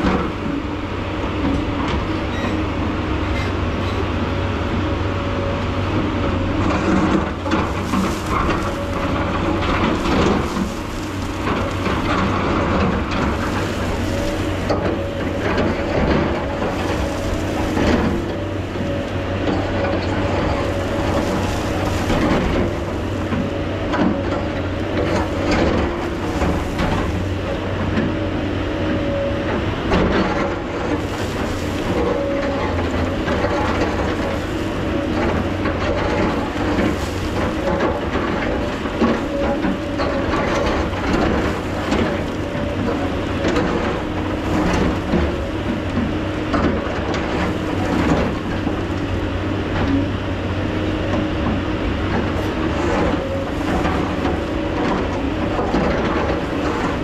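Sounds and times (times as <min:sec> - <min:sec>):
excavator engine humming and whining: 0:00.0 - 0:57.0
soil and stones rattling down: 0:06.7 - 0:27.6, 0:30.9 - 0:48.6
bucket scraping rock: 0:06.8 - 0:28.0, 0:30.8 - 0:48.8.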